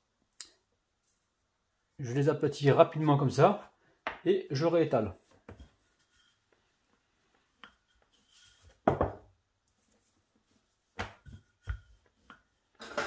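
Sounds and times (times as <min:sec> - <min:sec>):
rolling pin thudding on wood: 0:08.8 - 0:09.3, 0:11.0 - 0:12.4.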